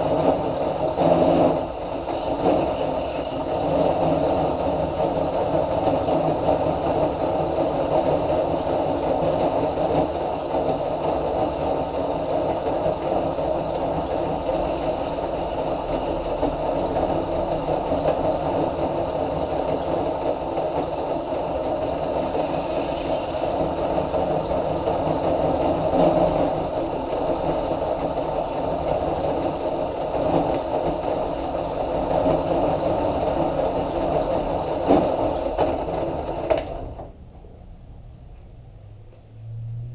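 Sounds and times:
electric motor drive running: 0.3s - 6.5s
hand tool shaving plastic: 0.9s - 6.1s.

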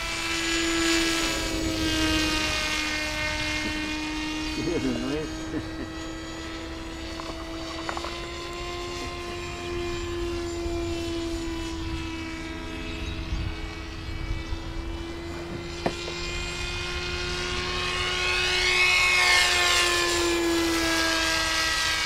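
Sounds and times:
model jet motor droning: 0.0s - 22.0s.

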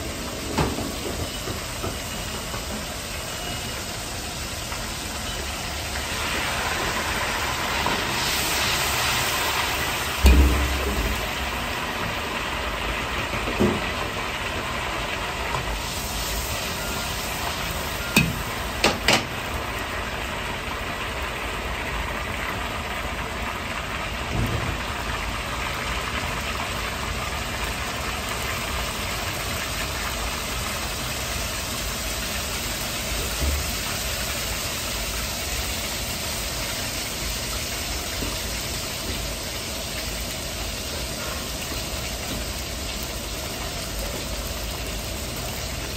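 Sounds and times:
butter sizzling in a wok: 0.0s - 45.9s
gas burner roaring: 0.0s - 45.9s
sharp knocks: 10.2s - 11.6s.

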